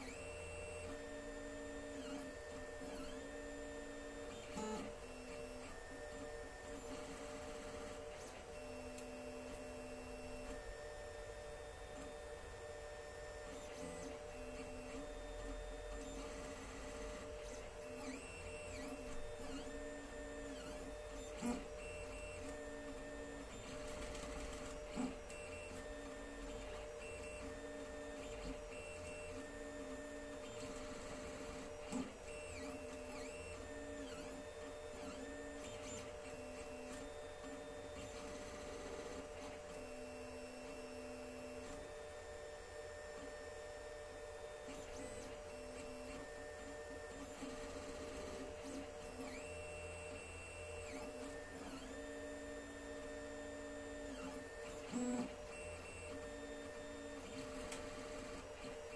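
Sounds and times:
stepper motors whining: 0:44.6 - 0:58.9.

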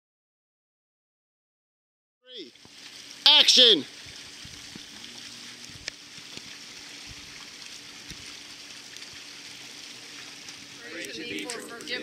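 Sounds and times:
bonfire hissing: 0:02.5 - 0:12.0
fire popping: 0:02.6 - 0:12.0.

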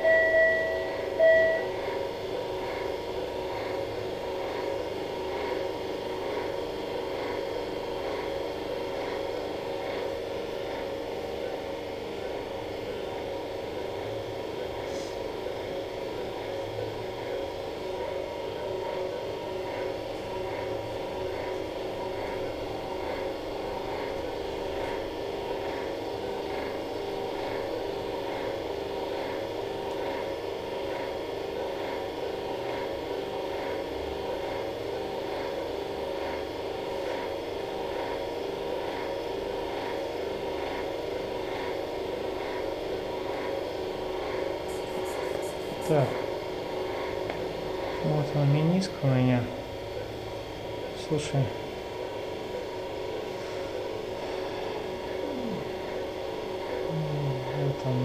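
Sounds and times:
held electronic tones: 0:00.0 - 0:01.8
short electronic beep: 0:00.0 - 0:01.8
equipment electrical hum and whir: 0:00.0 - 0:58.0.

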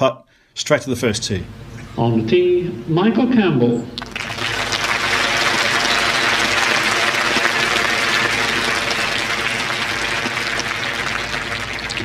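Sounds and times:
crowd applauding: 0:04.0 - 0:12.0.

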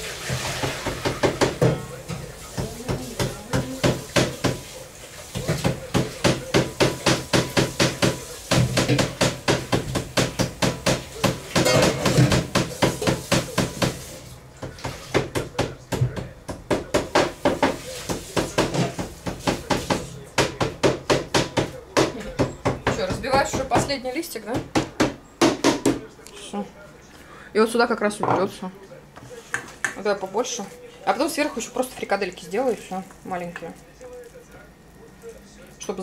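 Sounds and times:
kitchen tool knocking on surface: 0:05.4 - 0:14.0.

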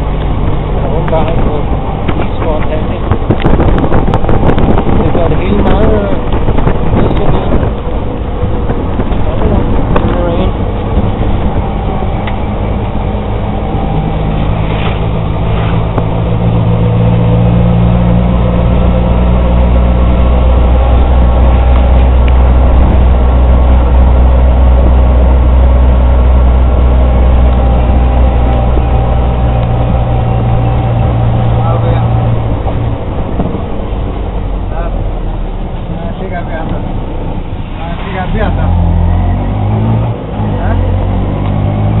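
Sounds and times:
road and wind noise: 0:00.0 - 0:42.0
small engine droning: 0:07.0 - 0:37.6.

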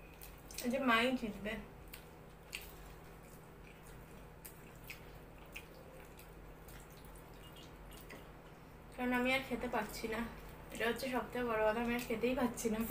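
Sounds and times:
wet clicks and squishes of eating: 0:00.0 - 0:00.8, 0:01.8 - 0:08.4, 0:11.7 - 0:12.3
faint steady hum: 0:00.0 - 0:12.9.

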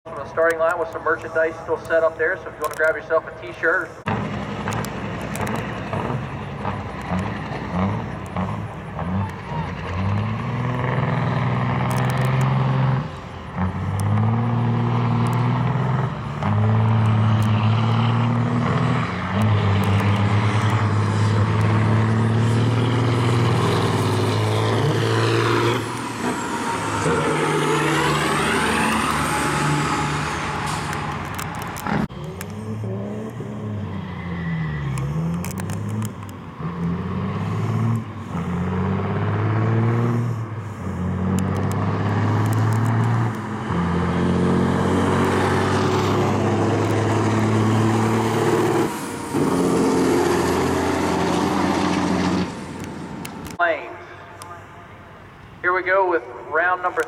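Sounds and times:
diesel engine revving: 0:00.0 - 0:57.0
diesel truck engines at full throttle: 0:00.0 - 0:57.0
high whine: 0:25.8 - 0:33.4.

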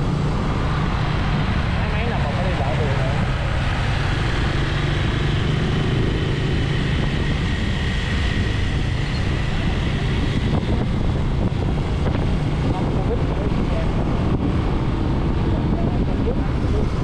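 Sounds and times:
wind and road noise: 0:00.0 - 0:17.0.

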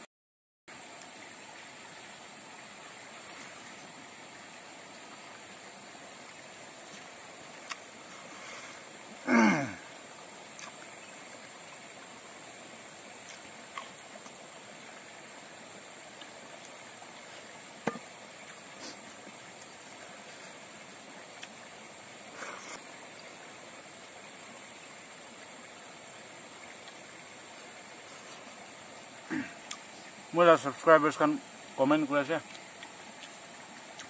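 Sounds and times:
steady hiss: 0:00.7 - 0:34.0
man's falling vocal sound: 0:09.2 - 0:09.9.

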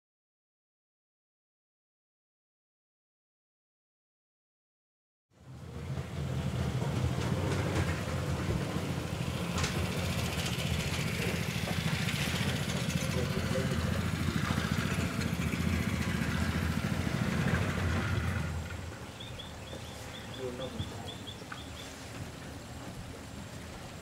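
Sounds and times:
motorboat engine droning: 0:05.4 - 0:24.0.

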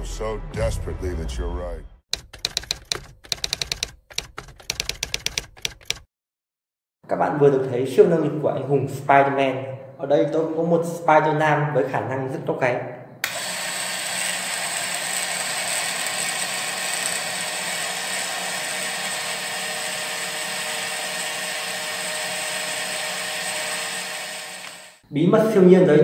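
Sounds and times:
motor and belt whining: 0:13.3 - 0:25.0.

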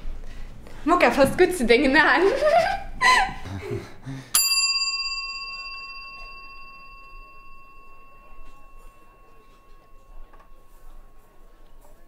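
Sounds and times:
bell-like ring: 0:04.4 - 0:12.0.

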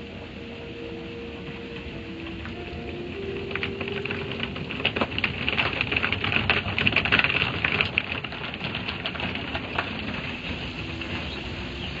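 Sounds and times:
water spray pattering on glass: 0:02.1 - 0:12.0.

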